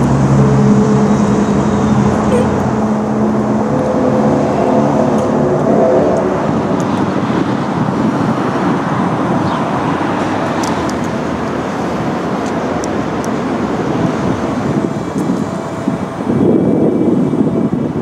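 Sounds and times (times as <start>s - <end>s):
road traffic rushing: 0.0s - 18.0s.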